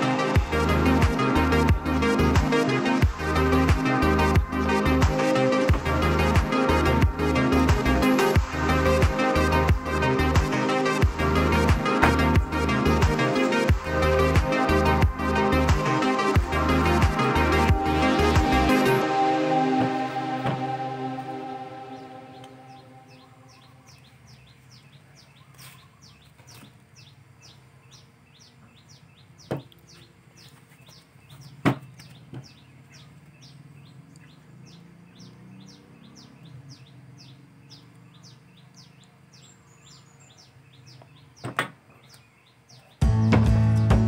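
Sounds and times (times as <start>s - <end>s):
music: 0.0s - 23.6s, 43.0s - 44.0s
high repeated chirping: 0.0s - 24.6s.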